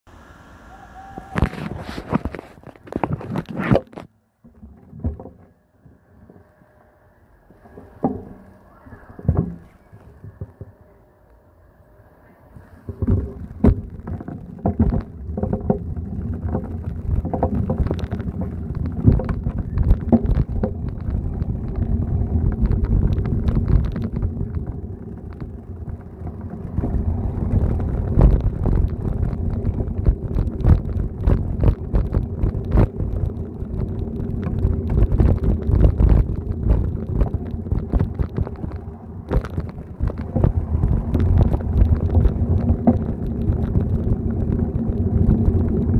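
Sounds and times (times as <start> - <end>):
bicycle knocks and rattles: 1.2 - 6.5, 7.5 - 10.9, 12.8 - 45.9
wind buffeting microphone: 12.5 - 45.9.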